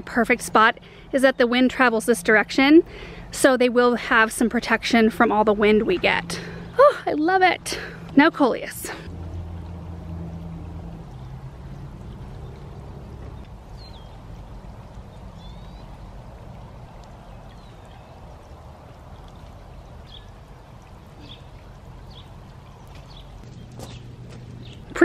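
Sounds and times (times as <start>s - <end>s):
fountain water splashing: 0.2s - 25.0s.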